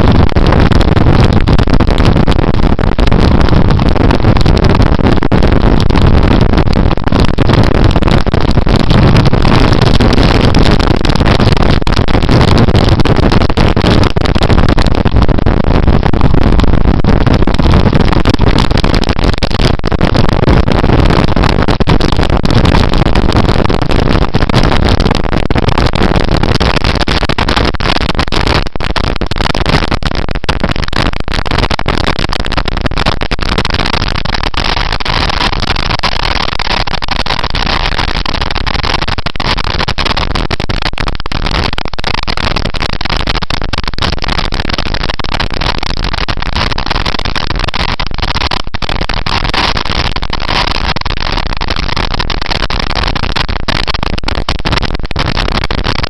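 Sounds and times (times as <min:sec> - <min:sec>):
wind buffeting microphone: 0:00.0 - 0:31.1.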